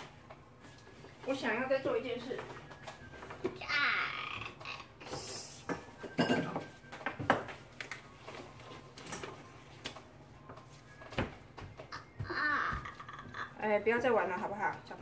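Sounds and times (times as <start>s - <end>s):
kitchen utensils clattering: 5.7s - 7.5s.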